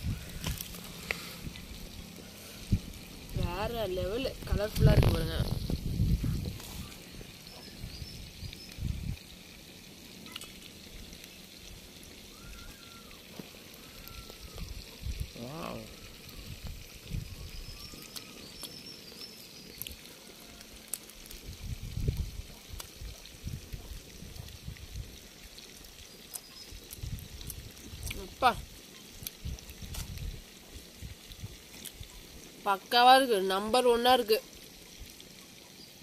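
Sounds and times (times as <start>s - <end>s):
faint high chirps: 12.3s - 14.9s, 17.1s - 20.3s.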